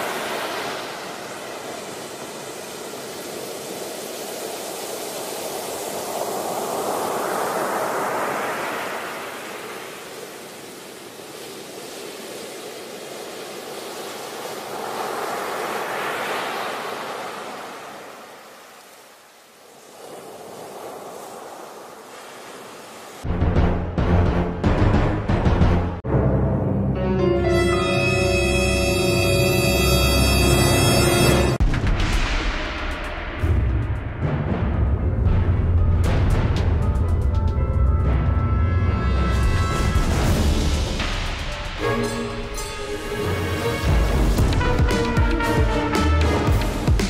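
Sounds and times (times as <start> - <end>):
rushing surf-like noise: 0.0 - 23.3
music with heavy drum hits: 43.9 - 47.0.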